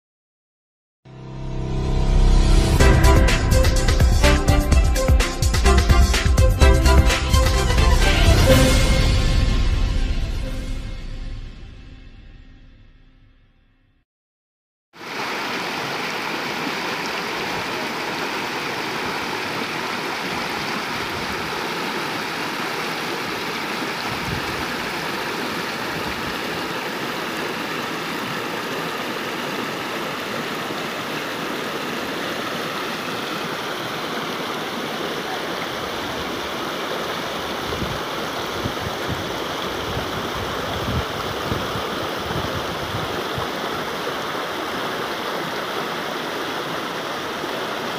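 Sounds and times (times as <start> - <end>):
stream rushing over rocks: 15.0 - 47.9.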